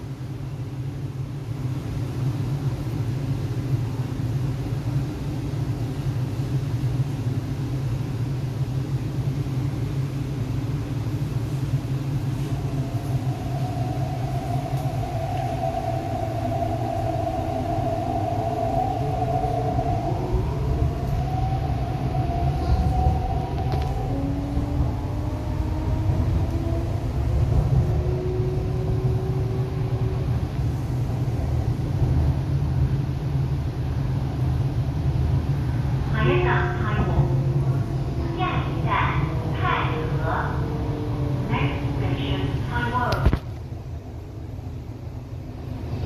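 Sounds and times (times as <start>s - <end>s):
train cabin low hum: 0.0s - 46.0s
traction motors whining rising: 12.4s - 31.1s.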